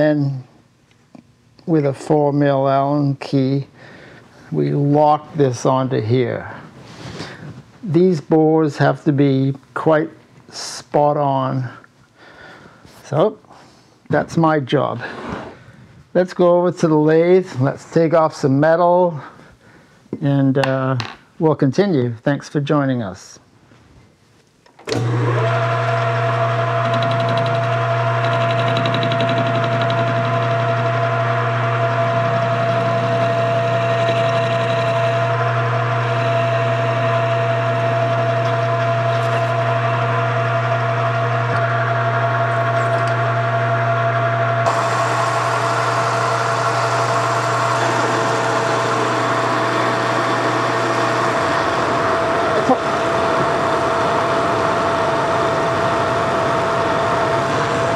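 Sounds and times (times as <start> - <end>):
metal lathe motor hum with whine: 25.0 - 57.9.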